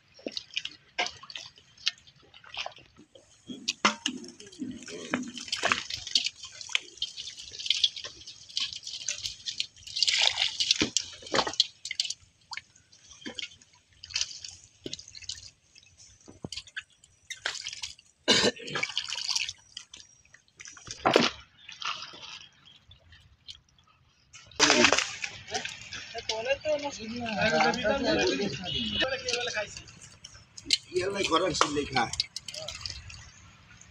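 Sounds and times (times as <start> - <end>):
heavy water splashes: 0.0 - 15.5, 16.3 - 20.0, 24.6 - 33.9
water splashing and dripping: 0.0 - 33.9.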